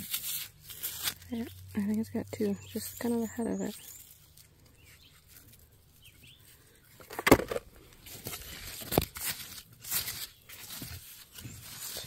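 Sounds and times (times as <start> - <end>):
digging in clay and gravel: 0.0 - 12.0.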